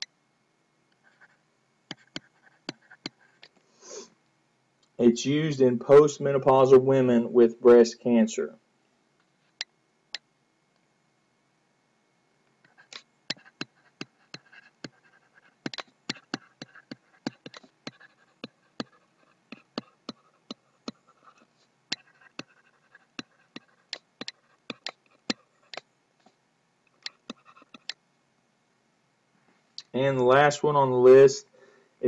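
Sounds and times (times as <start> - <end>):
stylus tapping on tablet: 1.9 - 3.2, 12.9 - 25.8, 27.0 - 28.0.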